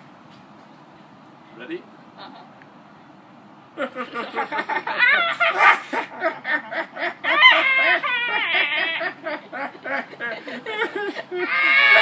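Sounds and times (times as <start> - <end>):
people laughing: 3.8 - 12.0.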